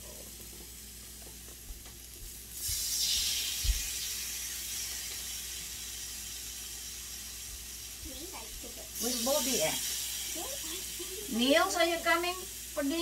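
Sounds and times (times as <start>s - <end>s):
beef sizzling on a grill: 0.0s - 13.0s.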